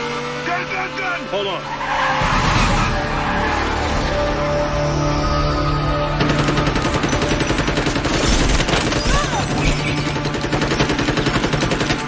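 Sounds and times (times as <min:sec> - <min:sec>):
film score music: 0:00.4 - 0:12.0
automatic gunfire: 0:10.0 - 0:12.0.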